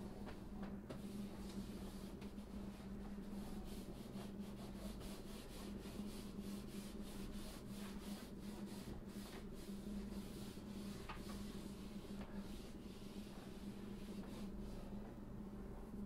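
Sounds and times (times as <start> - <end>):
steady low hum: 0.0 - 16.0
hand rubbing paper sheet: 1.0 - 15.0.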